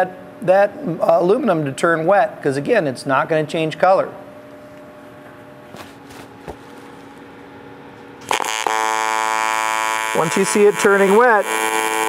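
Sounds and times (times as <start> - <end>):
faint hum: 0.0 - 12.0
welding arc buzzing: 8.2 - 12.0.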